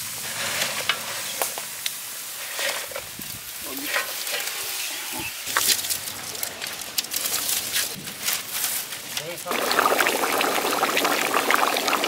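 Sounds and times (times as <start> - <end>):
fish sizzling in hot liquid: 9.4 - 12.0.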